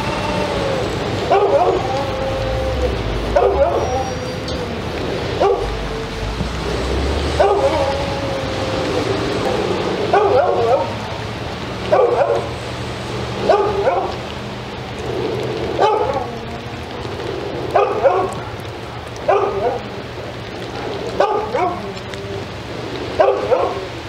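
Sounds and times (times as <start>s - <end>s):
rain falling: 0.0s - 24.0s
dog barking: 1.2s - 4.4s, 5.3s - 6.1s, 7.3s - 8.2s, 9.2s - 11.0s, 11.9s - 12.6s, 13.4s - 14.2s, 15.8s - 16.4s, 17.7s - 19.9s, 20.7s - 22.0s, 23.1s - 24.0s.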